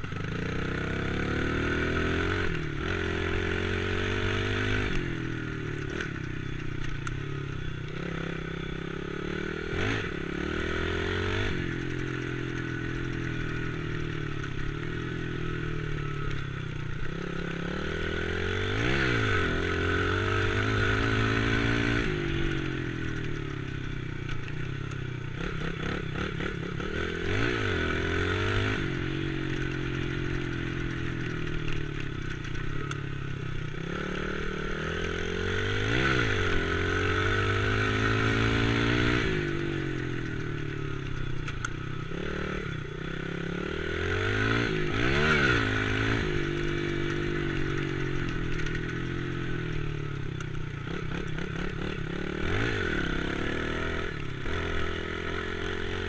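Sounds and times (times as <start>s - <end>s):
dirt bike engine revving: 0.0s - 6.9s, 7.9s - 24.6s, 25.2s - 56.0s.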